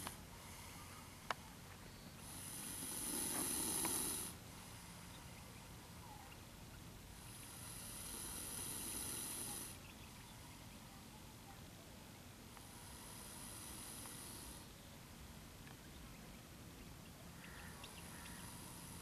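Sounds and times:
snake hissing: 2.2 - 5.0, 7.2 - 9.8, 12.7 - 14.8, 18.2 - 19.0.

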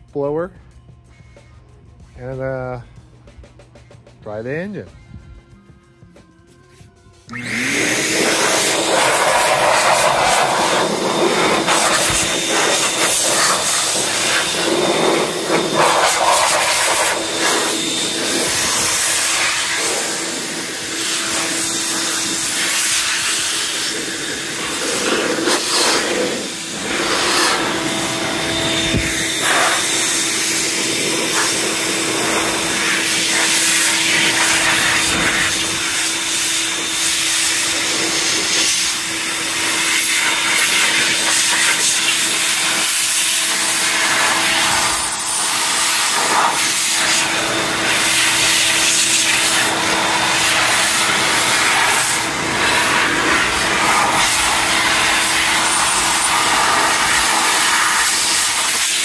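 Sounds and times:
leaf blower running: 7.3 - 59.0.

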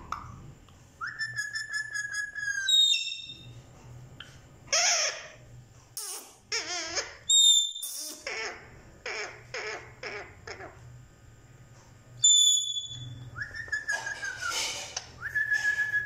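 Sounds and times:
parakeet whistling: 1.0 - 3.5, 7.3 - 8.5, 12.2 - 14.6
parakeet warbling calls: 2.5 - 3.4, 6.0 - 10.8, 12.2 - 13.2
parakeet squawk: 4.7 - 5.4, 6.0 - 10.8.

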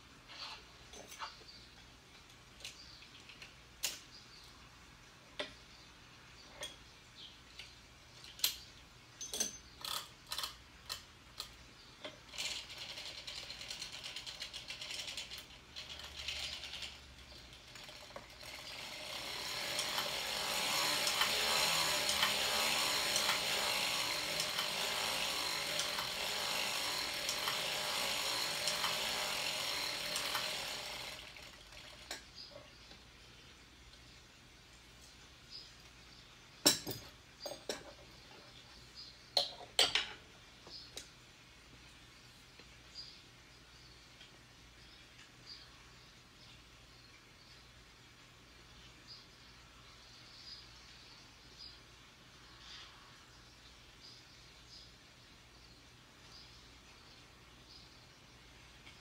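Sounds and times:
knitting machine needles clattering: 12.1 - 32.2
machine parts clicking: 12.3 - 32.2.

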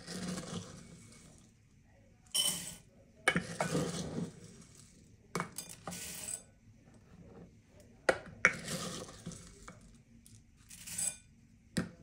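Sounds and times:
oats rattling into a bowl: 0.0 - 1.5, 2.3 - 6.4, 8.4 - 11.2
scoop scraping through oats: 0.0 - 1.5, 3.4 - 5.0, 5.9 - 6.4, 8.5 - 9.7.

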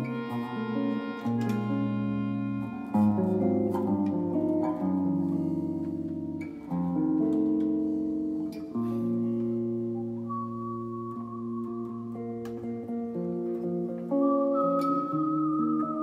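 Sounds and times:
electric guitar picking notes: 0.0 - 16.0
reedy chords from free-reed instrument: 0.0 - 16.0.

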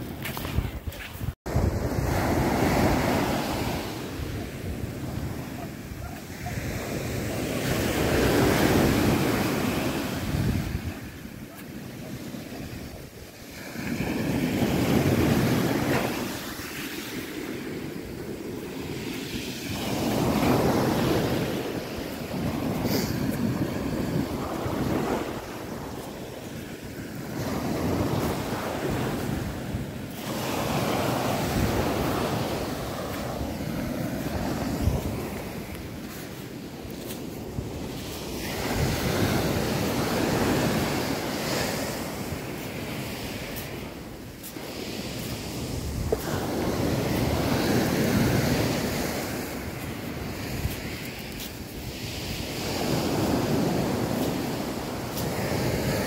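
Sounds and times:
waves breaking on shore: 0.0 - 56.0
wind buffeting microphone: 0.0 - 56.0.

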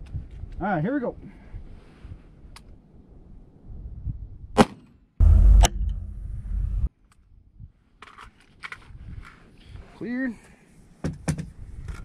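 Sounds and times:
wind buffeting microphone: 3.2 - 4.6
rifle shot: 4.6 - 6.2
sharp crack: 4.6 - 6.6.

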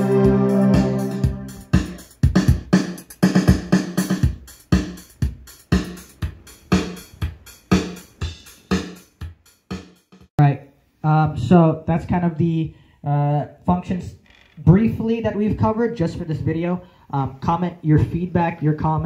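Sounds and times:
organ chords: 0.0 - 2.1
drum machine beat with bass: 0.0 - 10.3.

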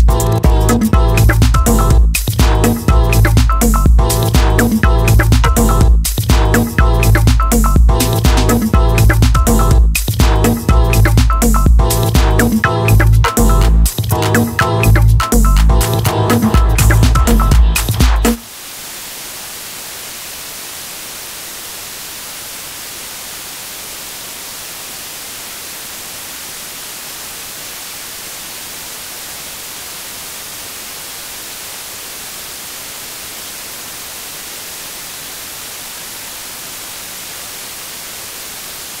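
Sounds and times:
television static hiss: 16.5 - 39.0.

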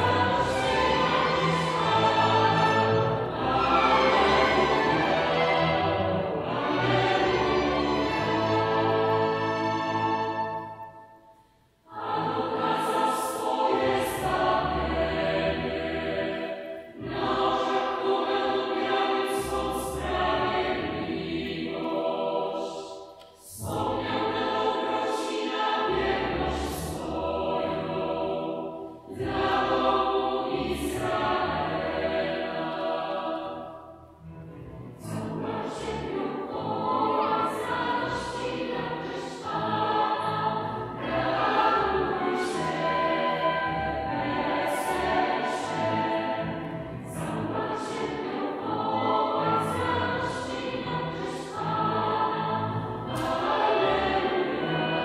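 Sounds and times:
mixed choir singing: 0.0 - 11.2, 11.9 - 55.0.

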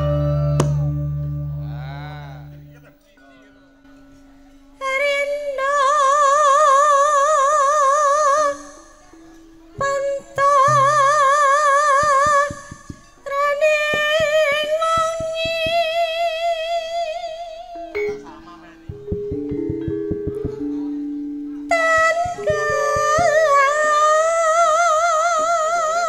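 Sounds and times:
woman singing with vibrato: 0.0 - 1.6, 4.8 - 9.0, 9.8 - 18.0, 21.7 - 26.0
quiet band accompaniment: 0.0 - 25.6
sharp drum strokes: 18.9 - 20.7.

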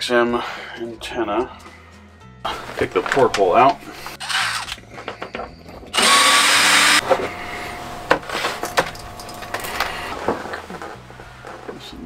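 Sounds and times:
cordless drill running: 4.2 - 4.8, 5.9 - 8.1.

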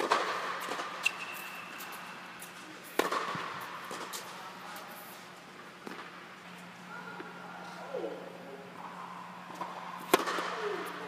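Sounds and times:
tennis racket striking ball: 3.0 - 4.3, 9.6 - 10.5.

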